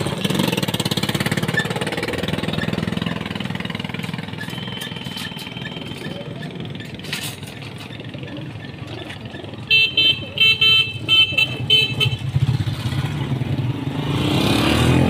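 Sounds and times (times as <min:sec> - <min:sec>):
vehicle horn honking: 0:09.7 - 0:12.5
vehicle engine passing by: 0:12.4 - 0:15.0.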